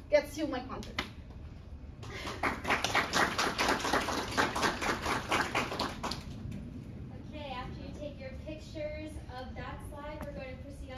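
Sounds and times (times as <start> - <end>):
audience applauding: 2.0 - 6.4.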